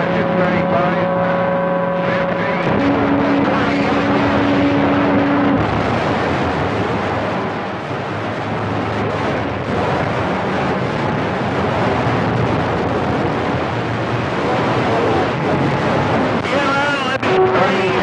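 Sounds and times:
steady heterodyne tone: 0.0 - 5.7
radio static hiss: 2.0 - 5.7, 16.3 - 18.0.

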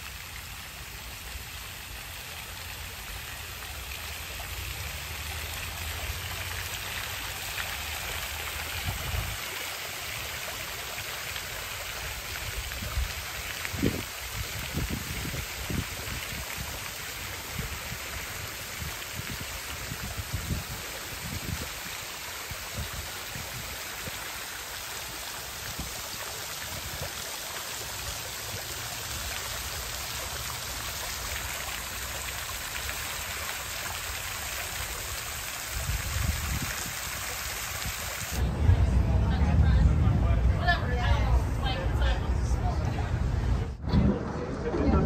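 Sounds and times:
fountain water splashing: 0.0 - 43.7
low rumbles: 38.4 - 45.0.

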